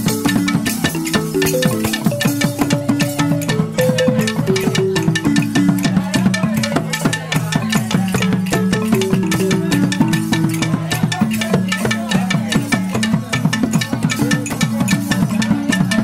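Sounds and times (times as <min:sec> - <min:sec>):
wooden xylophone playing: 0:00.0 - 0:16.0.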